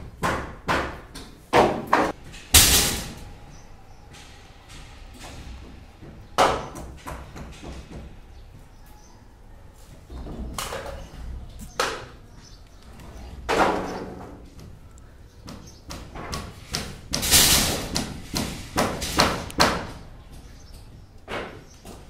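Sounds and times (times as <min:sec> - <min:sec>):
wooden planks knocking and clattering: 0:00.2 - 0:03.1.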